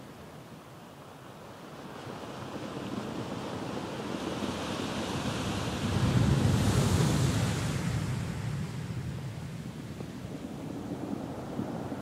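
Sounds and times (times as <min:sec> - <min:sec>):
wind on microphone: 0:02.5 - 0:12.0.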